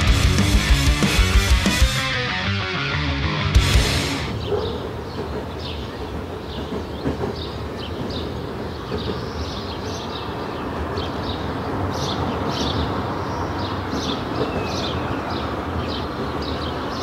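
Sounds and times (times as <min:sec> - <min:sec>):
small birds chirping: 0:04.3 - 0:17.0.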